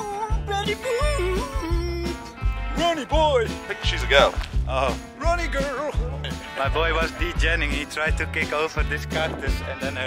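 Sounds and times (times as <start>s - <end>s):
person singing: 0.0s - 2.2s
low bass beat: 0.0s - 10.0s.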